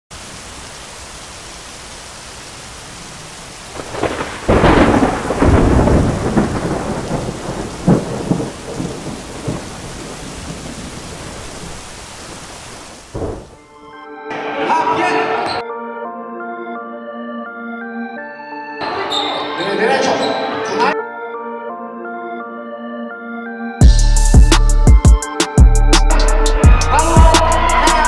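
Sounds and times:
rain hiss: 0.1s - 13.6s
thunder rumbling: 3.7s - 13.6s
sharp thunder crack: 3.8s - 11.8s, 13.0s - 13.6s.

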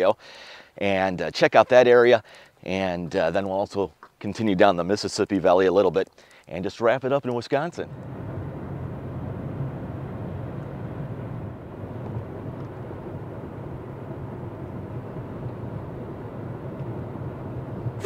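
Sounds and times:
car road and engine noise: 7.9s - 18.0s.

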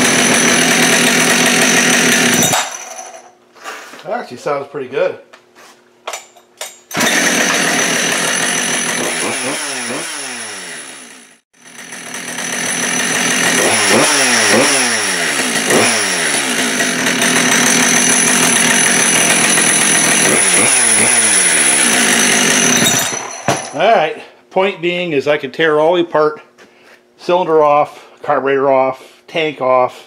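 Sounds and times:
chainsaw engine revving: 0.0s - 2.8s, 6.9s - 23.9s.

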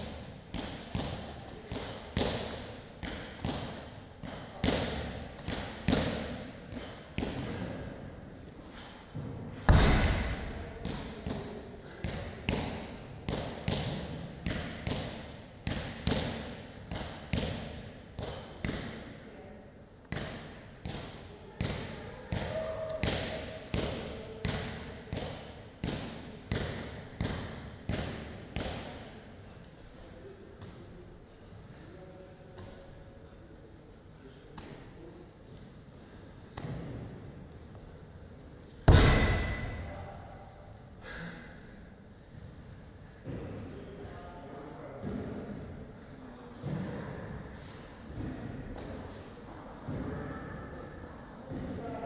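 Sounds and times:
medicine ball thudding against wall: 9.2s - 19.0s, 38.9s - 39.9s.

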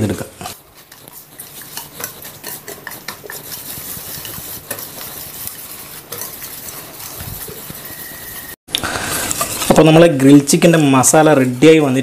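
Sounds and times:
metal spoon scraping steel bowl: 0.4s - 8.6s.

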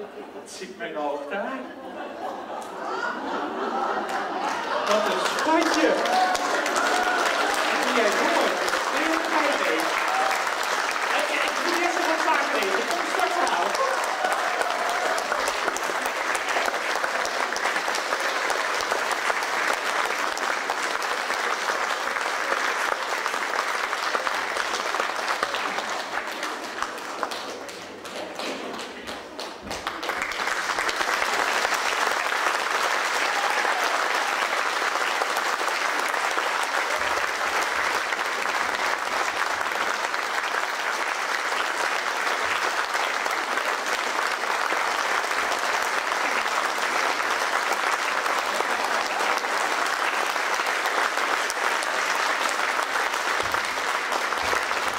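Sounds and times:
audience applauding: 1.4s - 54.9s.

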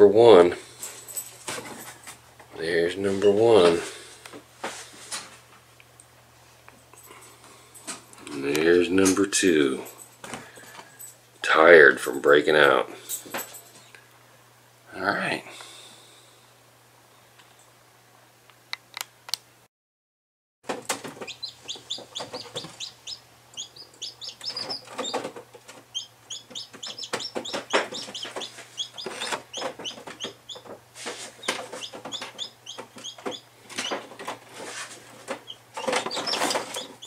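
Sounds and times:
chicks peeping: 20.8s - 37.0s.

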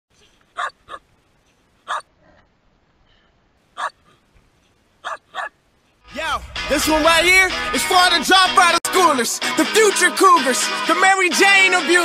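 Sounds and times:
dog barking: 0.6s - 1.0s, 1.9s - 2.1s, 3.8s - 4.1s, 5.0s - 5.6s.

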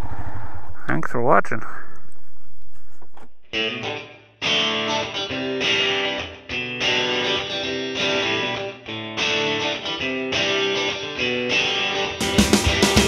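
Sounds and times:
guitar chords: 3.3s - 13.0s.

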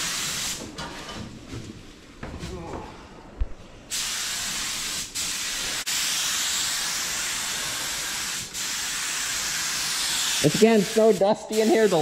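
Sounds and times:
paint spray gun hissing: 3.9s - 12.0s.

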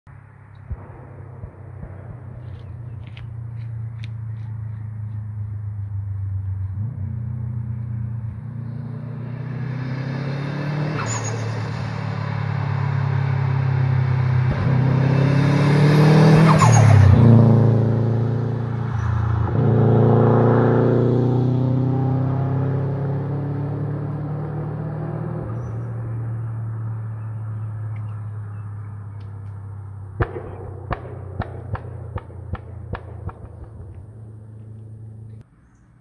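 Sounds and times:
sharp exhaust pops: 0.5s - 6.6s, 29.2s - 35.4s
car driving past hard: 4.7s - 29.0s.

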